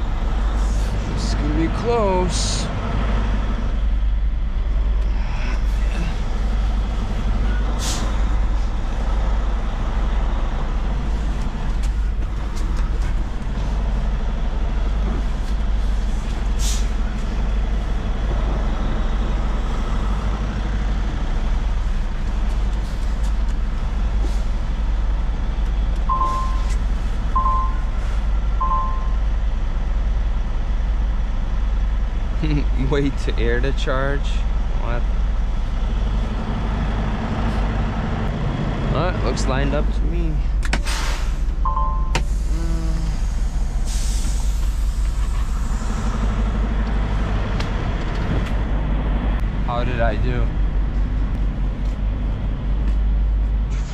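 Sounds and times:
diesel truck engine running: 0:00.0 - 0:53.9
air brake hiss: 0:07.8 - 0:08.2, 0:16.6 - 0:17.0, 0:40.8 - 0:41.5, 0:42.2 - 0:46.2
backup alarm beeps: 0:26.1 - 0:26.8, 0:27.4 - 0:28.0, 0:28.6 - 0:29.2, 0:41.6 - 0:42.2.

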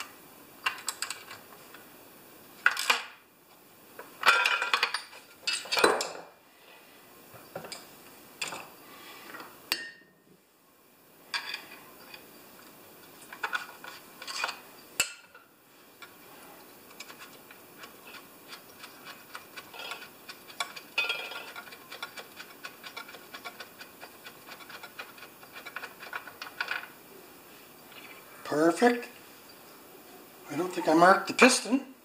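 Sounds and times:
metallic scrapes and rattles: 0:16.0 - 0:27.0.

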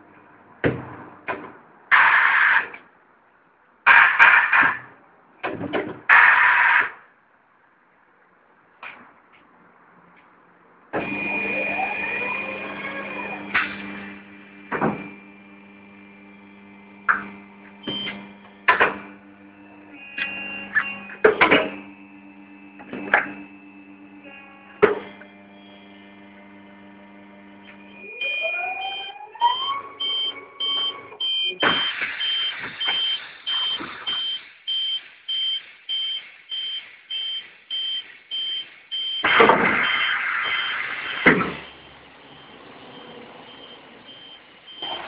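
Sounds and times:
electric hum: 0:11.0 - 0:34.2
motor whine: 0:11.0 - 0:34.4
high warning beep: 0:17.8 - 0:18.2, 0:27.8 - 0:45.0
bursts of noise: 0:39.2 - 0:45.0.

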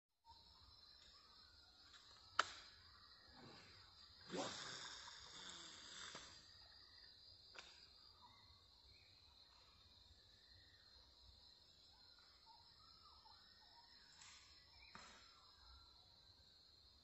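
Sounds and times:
high-pitched insect drone: 0:00.3 - 0:07.4.

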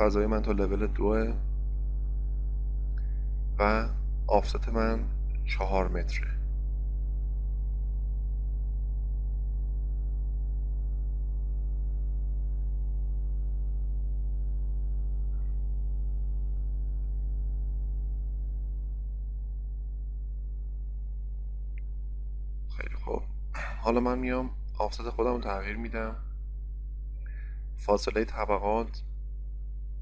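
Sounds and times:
electrical hum with buzzing: 0:00.0 - 0:30.0.

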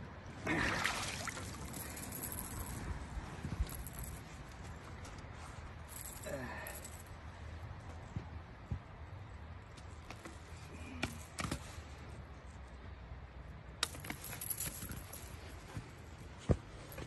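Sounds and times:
handling clicks and knocks: 0:13.8 - 0:15.5.

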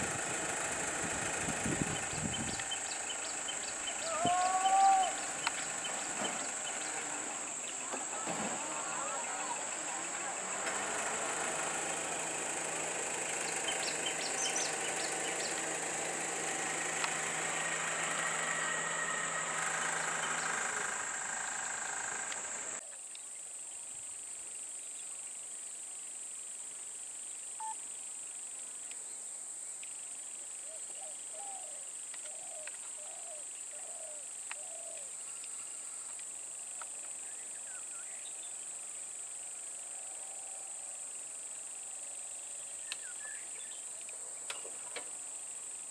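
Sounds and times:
bus engine idling: 0:00.0 - 0:22.8
road ambience: 0:00.0 - 0:22.8, 0:31.6 - 0:45.9
steady high hiss: 0:00.0 - 0:45.9
bird calling: 0:01.9 - 0:10.7, 0:13.0 - 0:16.2, 0:30.6 - 0:35.8.

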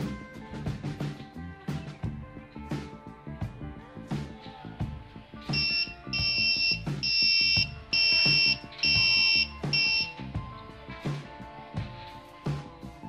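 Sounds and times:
shrill alarm buzzer beeping: 0:05.5 - 0:10.2.

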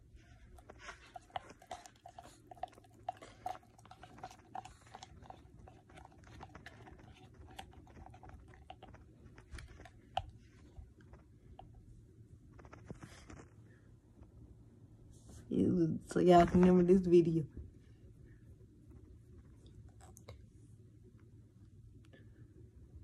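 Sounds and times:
plastic spoon stirring in jar: 0:00.6 - 0:10.4.

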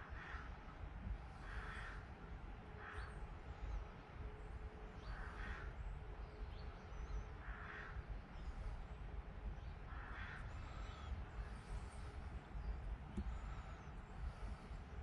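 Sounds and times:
low steady rumble: 0:00.0 - 0:15.0
faint harsh bird calls: 0:01.3 - 0:02.1, 0:05.0 - 0:15.0.

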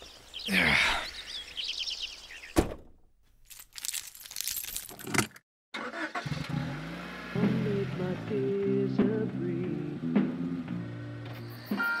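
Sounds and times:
bird chirps: 0:00.0 - 0:02.7.

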